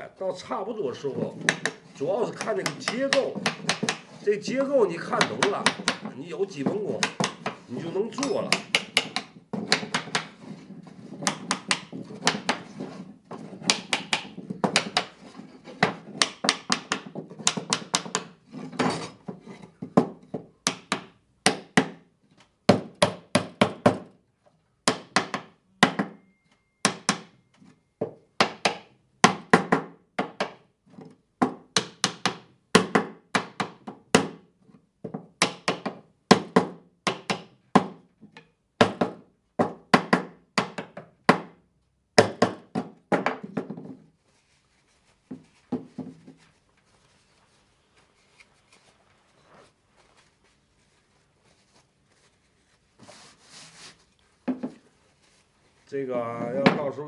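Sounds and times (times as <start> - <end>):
small hammer tapping wood: 1.4 - 4.1, 5.1 - 7.6, 8.2 - 10.4, 11.2 - 12.6, 13.6 - 15.2, 15.8 - 18.4, 19.8 - 22.0, 31.4 - 34.4, 35.1 - 41.5.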